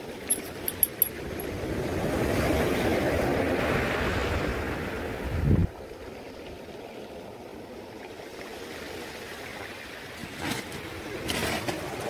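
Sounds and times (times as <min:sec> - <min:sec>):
waves washing over pebbles: 0:05.9 - 0:12.0.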